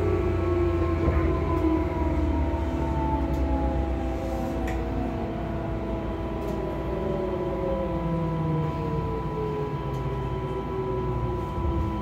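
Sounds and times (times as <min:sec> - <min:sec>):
electric train motor whine: 0:00.0 - 0:12.0.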